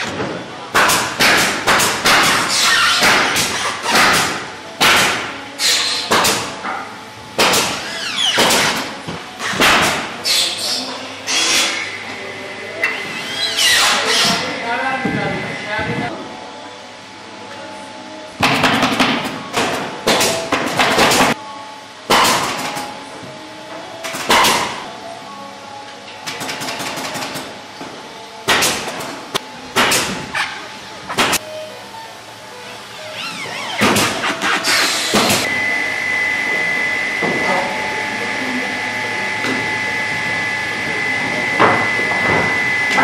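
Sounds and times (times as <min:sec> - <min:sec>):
high-pitched machine whine: 0:31.4 - 0:43.0.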